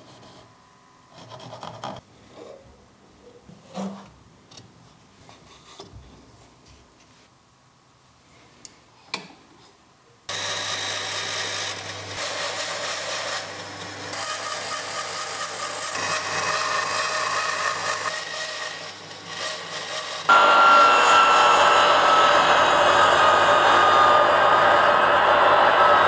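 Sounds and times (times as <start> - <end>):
bandsaw cutting wood: 10.3 - 26.0
mitre saw motor whining: 10.3 - 26.0.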